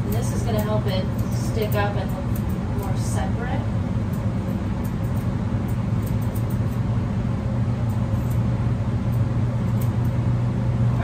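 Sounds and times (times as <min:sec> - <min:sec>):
grooming shears snipping: 0:00.0 - 0:03.3, 0:04.0 - 0:06.9, 0:07.8 - 0:10.2
low motor hum: 0:00.0 - 0:11.0.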